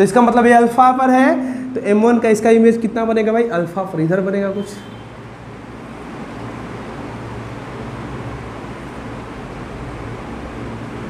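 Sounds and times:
room noise hiss: 0.0 - 11.0.

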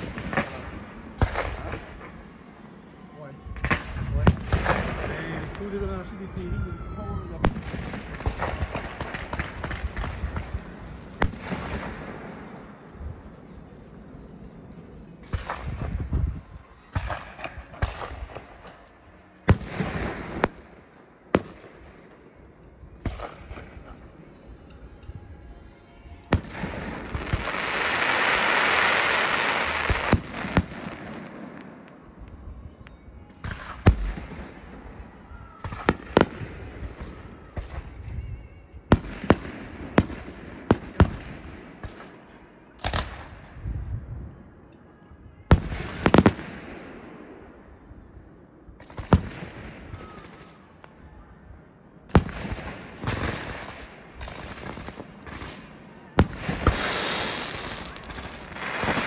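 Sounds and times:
fireworks hissing crackle: 0.0 - 24.7, 25.5 - 38.0, 52.1 - 59.0
firework shells bursting: 52.1 - 59.0.

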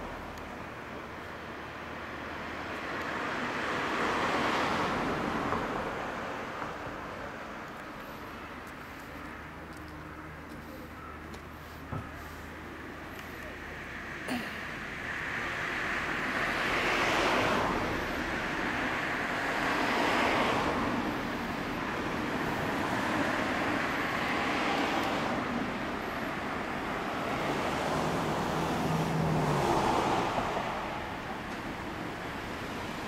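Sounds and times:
cars passing by: 0.0 - 33.0.

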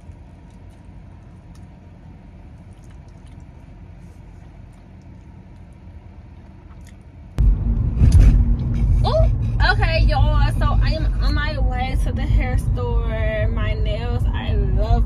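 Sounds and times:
car driving rumble from cabin: 0.0 - 15.0
low hum inside car: 0.0 - 15.0
mouth clicks from chewing: 2.6 - 3.5.

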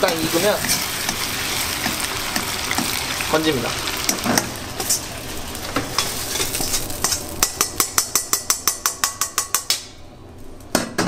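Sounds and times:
metal utensils clinking: 0.0 - 3.0, 5.9 - 8.5
oil sizzling in a wok: 0.0 - 9.6.

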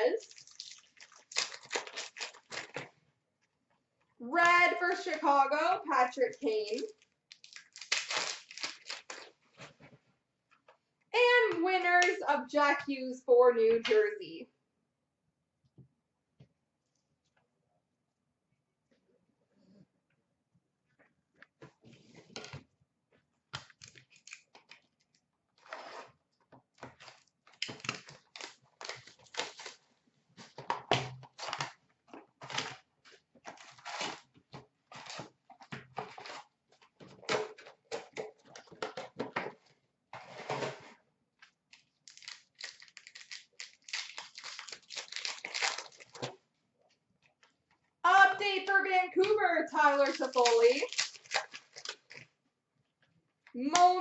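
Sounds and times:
card wrappers tearing and crinkling: 0.2 - 2.9, 6.7 - 9.4, 27.0 - 29.9, 33.5 - 34.3, 41.7 - 46.4, 49.8 - 52.2.

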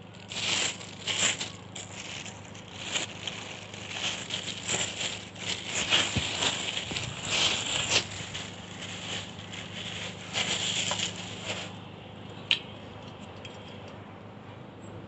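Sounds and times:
plastic bag crinkling: 0.0 - 11.8.

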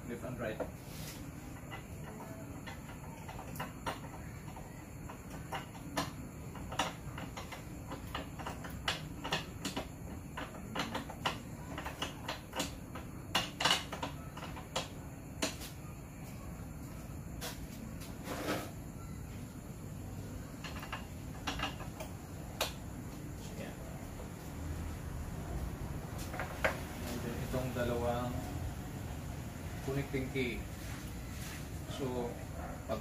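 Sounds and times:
parts clicking and knocking: 0.5 - 15.7, 20.0 - 24.4, 26.1 - 28.2.

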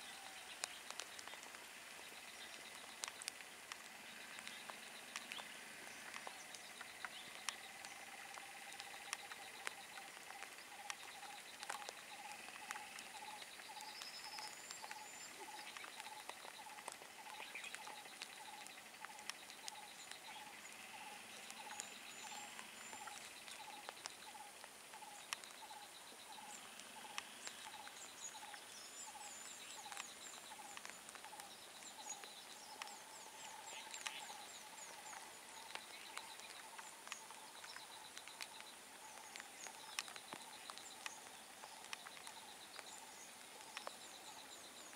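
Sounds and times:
birds chirping and twittering: 0.0 - 44.9
sharp clicks: 0.5 - 25.8.

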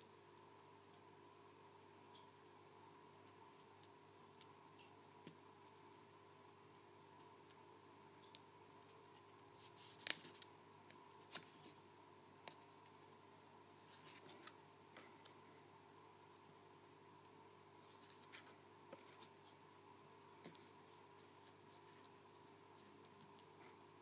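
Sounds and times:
fingers handling paper card: 8.9 - 10.5, 13.9 - 14.6, 20.5 - 23.5.

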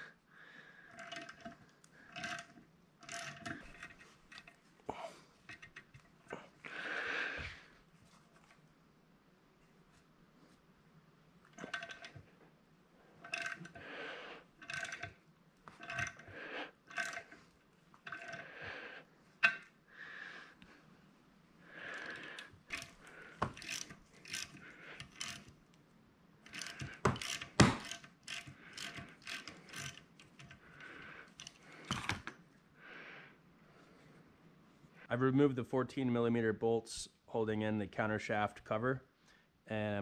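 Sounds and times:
socket ratchet clicking: 22.0 - 25.5, 26.4 - 32.3.

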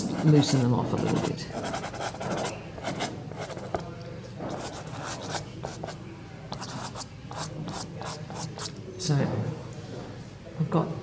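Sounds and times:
pastel stick stroking paper: 0.0 - 3.8, 4.5 - 8.7.

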